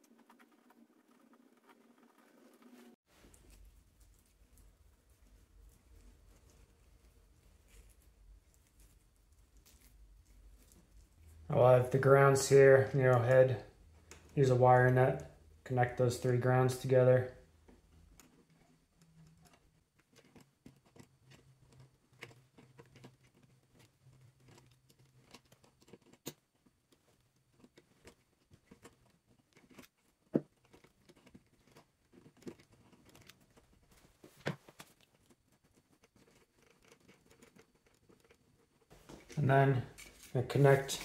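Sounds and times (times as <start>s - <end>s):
wires twisted with pliers: 17.6s - 33.8s.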